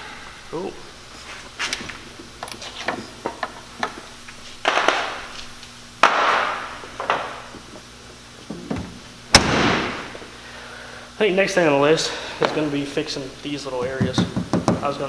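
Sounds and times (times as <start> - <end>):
loud bumps: 4.6 - 10.3.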